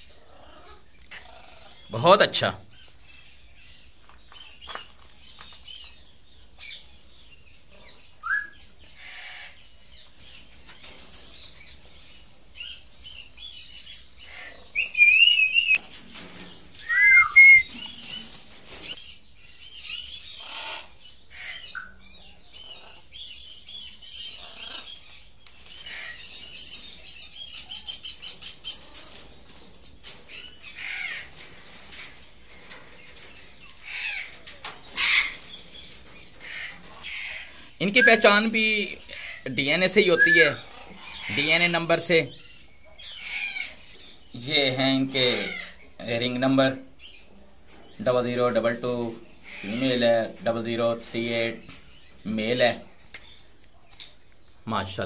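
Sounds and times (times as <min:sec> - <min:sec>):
birds chirping and calling: 0:00.0 - 0:55.0
loud whistled bird calls: 0:01.2 - 0:02.1, 0:08.2 - 0:09.6, 0:14.3 - 0:15.8, 0:16.8 - 0:18.1, 0:37.1 - 0:38.5, 0:40.0 - 0:41.5.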